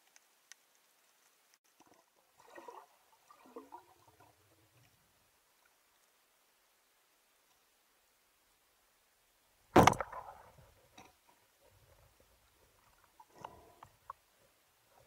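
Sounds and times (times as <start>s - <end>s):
faint clicks and knocks: 0.0s - 2.2s
speargun firing crack: 9.8s - 10.4s.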